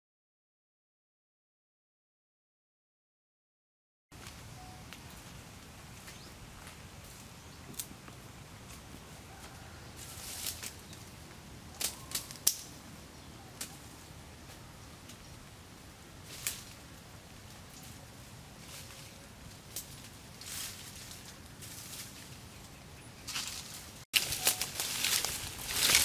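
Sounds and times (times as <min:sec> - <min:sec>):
dry leaves crackling: 0:04.2 - 0:26.0
twigs snapping: 0:10.2 - 0:11.1, 0:11.7 - 0:12.8, 0:16.3 - 0:16.8, 0:23.3 - 0:26.0.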